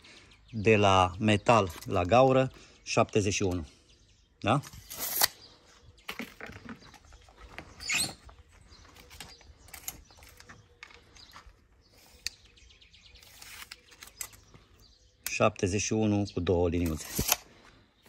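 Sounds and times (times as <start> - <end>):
wooden arrows clicking and rustling: 1.4 - 2.5, 4.4 - 15.4, 16.7 - 17.8
steel tape measure handled: 4.6 - 5.4, 13.1 - 14.5, 16.8 - 17.5.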